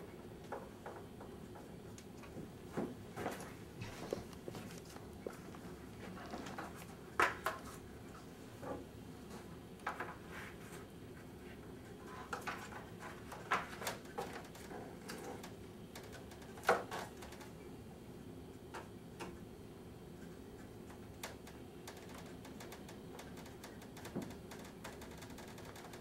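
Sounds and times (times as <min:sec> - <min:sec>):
faint clicks and light knocks: 0:20.6 - 0:26.0.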